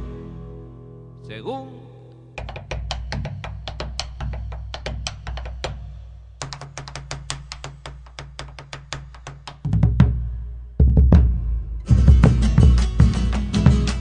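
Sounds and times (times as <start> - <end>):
clicking percussion beat: 2.4 - 10.2, 11.9 - 14.0
deep drum hits: 9.7 - 14.0.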